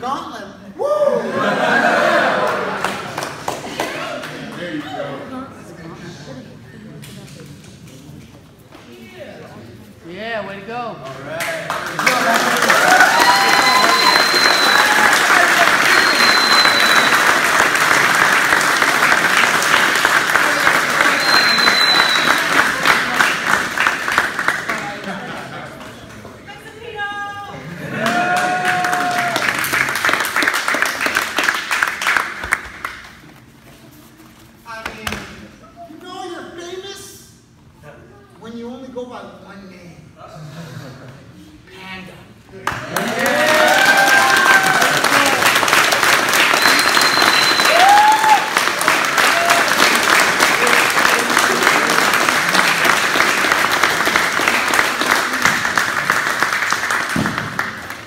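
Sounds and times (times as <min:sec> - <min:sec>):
crowd applauding: 0:01.5 - 0:05.0, 0:11.3 - 0:26.4, 0:27.7 - 0:33.2, 0:42.6 - 0:58.0.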